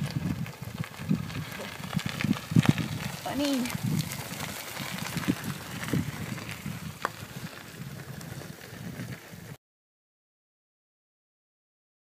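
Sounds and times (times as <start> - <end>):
bicycle tyres rolling on gravel: 0.0 - 9.6
wind on microphone: 0.0 - 9.6.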